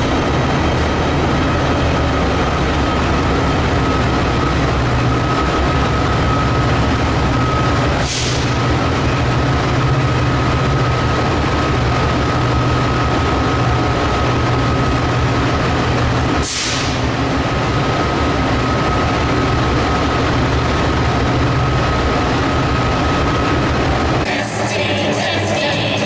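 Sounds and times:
constant high whine: 0:00.0 - 0:26.0
diesel locomotive engine idling: 0:00.0 - 0:26.0
air brake hiss: 0:08.0 - 0:08.6, 0:16.4 - 0:17.1.

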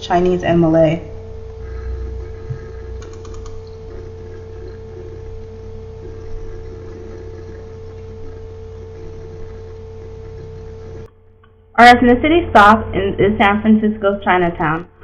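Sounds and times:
background hum and hiss: 0:00.0 - 0:15.0
constant mid-pitched tone: 0:00.0 - 0:15.0
faint clicks: 0:03.0 - 0:03.8.

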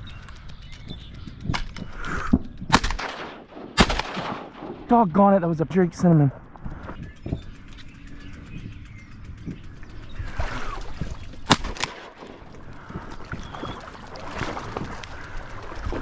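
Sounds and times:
weaker sharp crack: 0:01.5 - 0:05.2, 0:11.4 - 0:12.6
shotgun shot: 0:02.7 - 0:04.8, 0:11.5 - 0:12.3
reeds rustling: 0:10.2 - 0:16.0.

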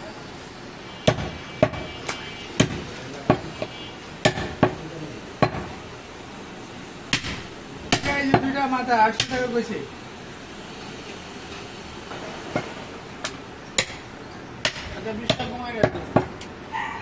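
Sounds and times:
knife chopping meat on wood block: 0:01.1 - 0:01.9, 0:02.6 - 0:03.6, 0:04.2 - 0:04.8.

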